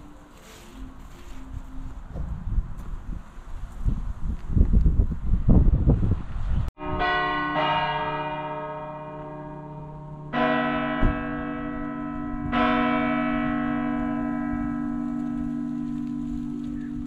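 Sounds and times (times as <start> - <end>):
church bell tolling: 6.8 - 17.0.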